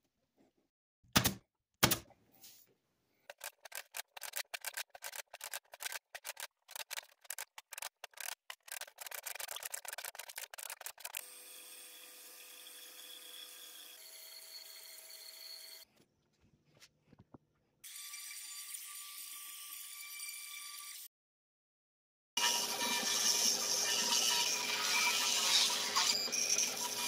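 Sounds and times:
bandsaw running: 22.4 - 27.0.

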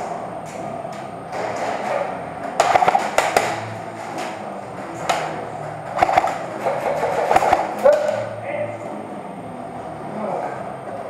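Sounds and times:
airsoft gunfire clacks: 2.6 - 3.7, 6.0 - 8.2.

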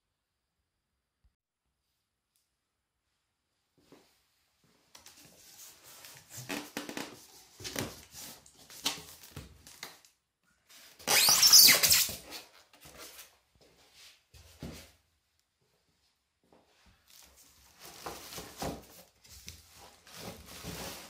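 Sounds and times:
polystyrene insert scraping: 11.0 - 12.4.

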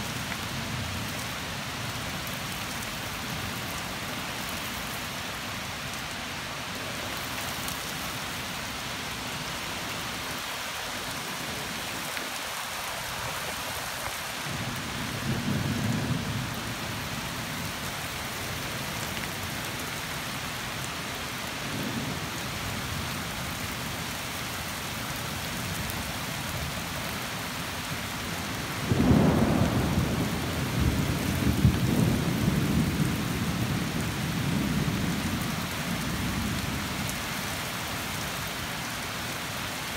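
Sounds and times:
steady rain falling: 0.0 - 39.9
thunder rumbling: 28.9 - 35.5.

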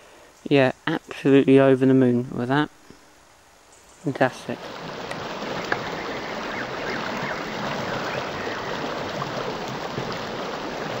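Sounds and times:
river water rushing: 4.4 - 11.0.

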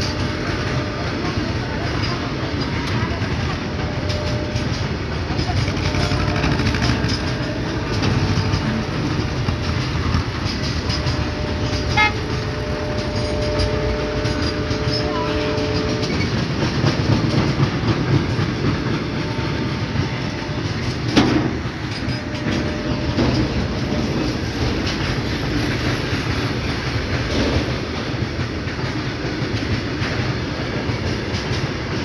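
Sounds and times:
freight train wheels clattering: 0.0 - 32.0.

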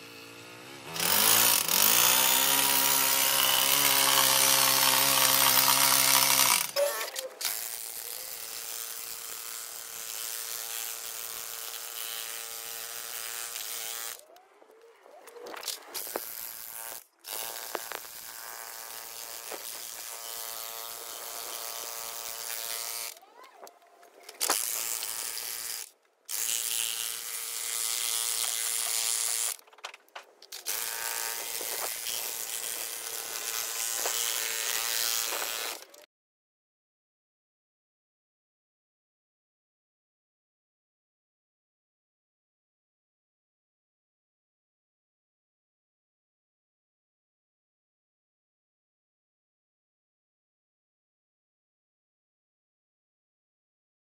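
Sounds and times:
power tool motor whining: 0.0 - 29.7, 30.4 - 36.1.

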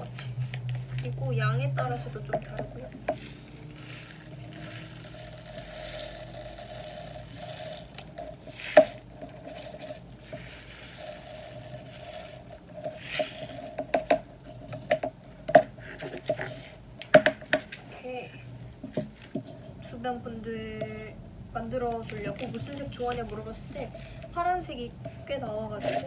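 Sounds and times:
plastic bags rustling: 3.2 - 13.8.

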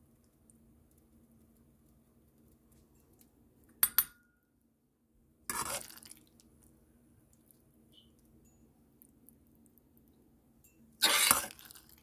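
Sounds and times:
metal spoon clinking on pot: 3.8 - 4.3
spoon scraping inside pot: 5.5 - 6.0, 11.0 - 11.8.

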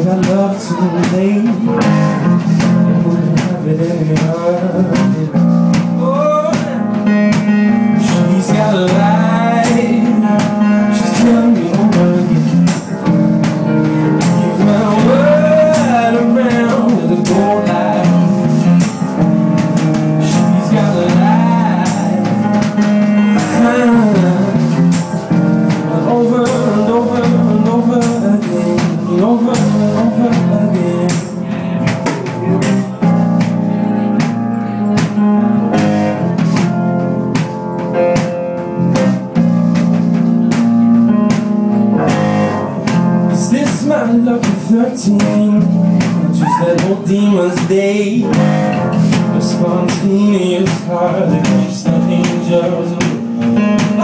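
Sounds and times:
bass line: 0.0 - 54.0
sliding lead melody: 0.0 - 54.0.

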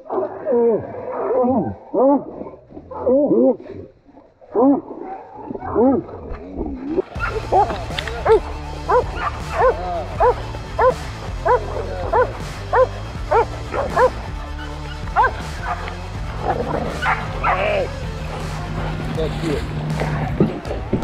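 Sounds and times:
dog barking: 4.6 - 5.8, 7.2 - 14.2, 15.1 - 15.9, 17.0 - 17.6
background music with low notes: 4.6 - 21.0.

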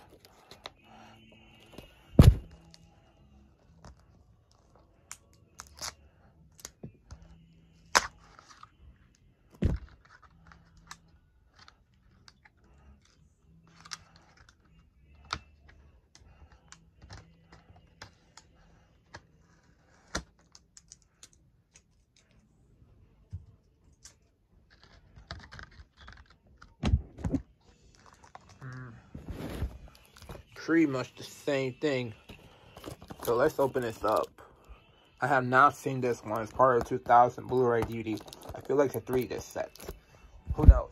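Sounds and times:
light clicks and taps handling package: 32.3 - 34.3, 36.2 - 40.0.

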